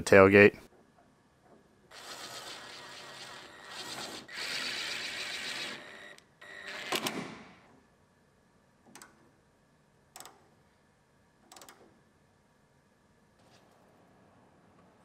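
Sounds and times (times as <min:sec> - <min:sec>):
power tool running: 0:01.9 - 0:07.1.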